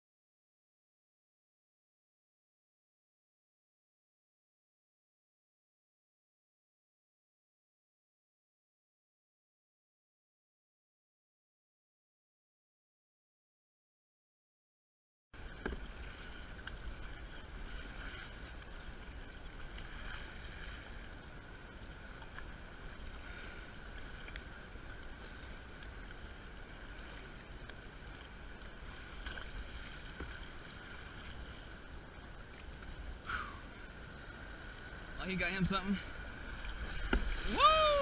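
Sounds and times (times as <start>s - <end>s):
water splashing around kayak: 15.4s - 38.0s.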